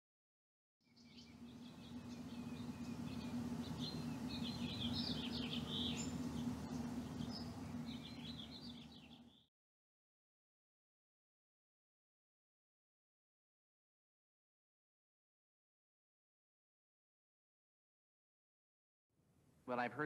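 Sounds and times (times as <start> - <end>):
birds chirping: 0.8 - 9.5
steady low hum: 0.8 - 9.5.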